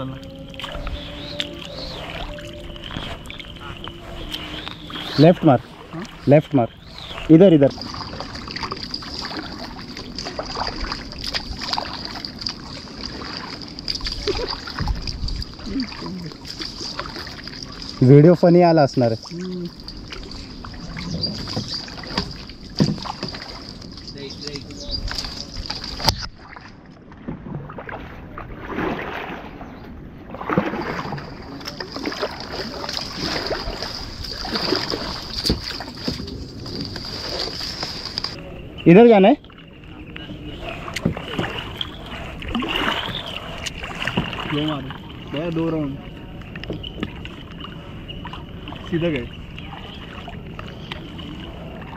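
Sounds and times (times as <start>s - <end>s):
high-pitched whine: 0.0s - 5.8s
water dripping: 0.0s - 26.6s
paddles splashing in water: 0.0s - 51.9s.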